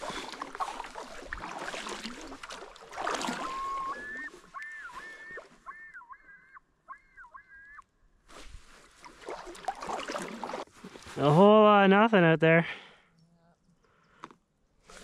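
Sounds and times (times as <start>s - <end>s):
water sloshing: 0.0s - 5.6s, 8.4s - 11.2s
bird whistling: 3.2s - 7.8s.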